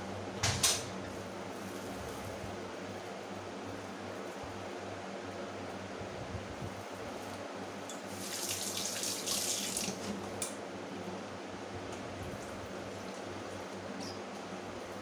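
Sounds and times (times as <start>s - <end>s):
tap water running into sink: 8.1s - 10.1s.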